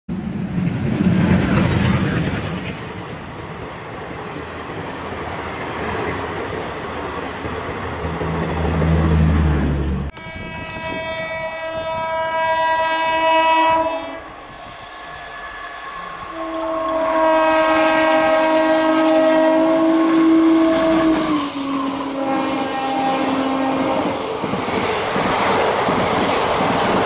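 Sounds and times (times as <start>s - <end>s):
train rumbling past: 0.1s - 27.0s
locomotive horn blast: 8.7s - 24.2s.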